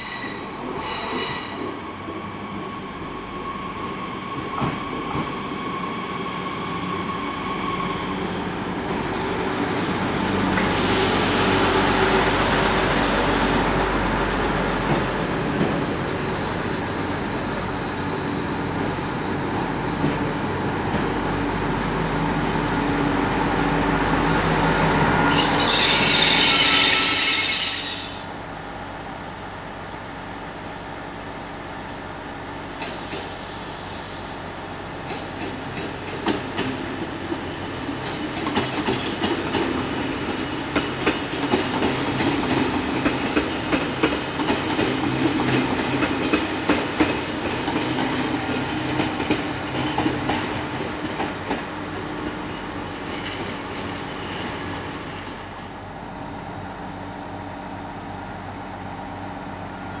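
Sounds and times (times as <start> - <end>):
train wheels clicking over rail joints: 35.0 - 55.4.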